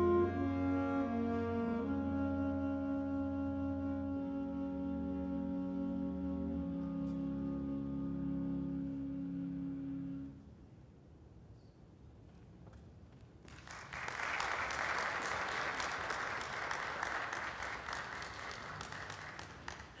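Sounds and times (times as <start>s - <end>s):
audience applause: 13.5s - 20.0s.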